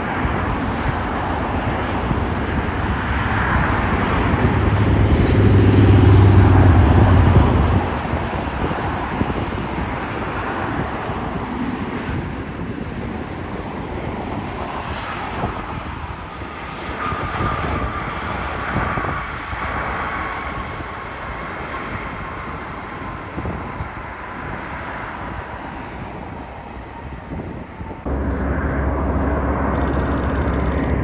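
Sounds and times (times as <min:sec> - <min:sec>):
jet airliner engines whining: 0:28.1 - 0:31.0.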